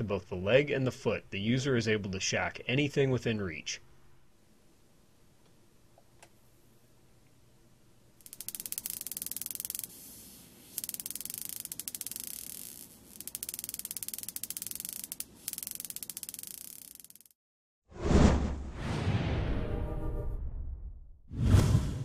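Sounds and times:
crackle of electric discharges: 8.2s - 17.4s.

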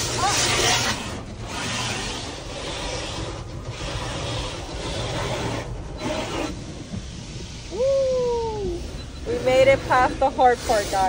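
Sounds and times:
car wash water spraying: 0.0s - 11.0s.

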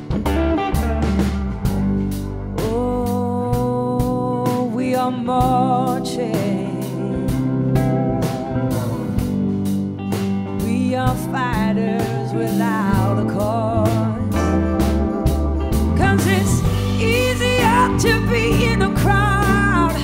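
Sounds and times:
blues-rock band playing: 0.0s - 20.0s
woman singing: 2.6s - 8.9s, 10.6s - 15.0s, 15.8s - 20.0s.

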